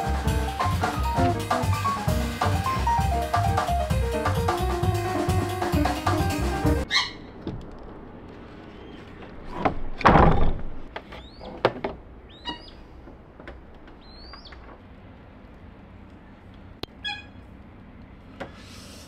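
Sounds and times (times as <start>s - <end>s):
bird chirping: 11.2s - 11.5s, 12.3s - 12.8s, 14.0s - 14.6s.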